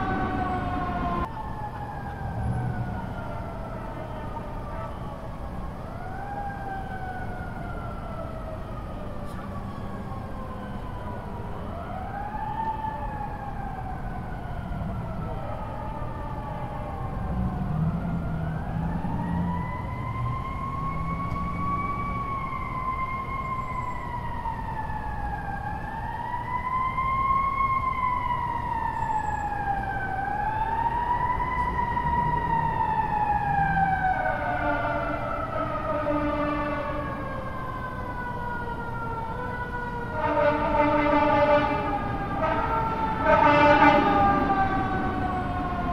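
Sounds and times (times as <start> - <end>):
fire engine siren wailing: 0.0 - 45.9
low engine and road rumble: 0.0 - 45.9.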